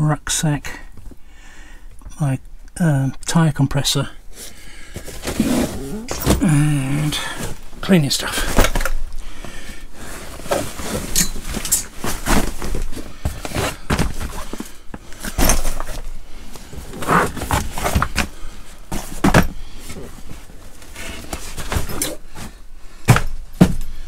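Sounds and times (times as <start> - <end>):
bags rustling: 4.9 - 9.1, 10.0 - 24.0.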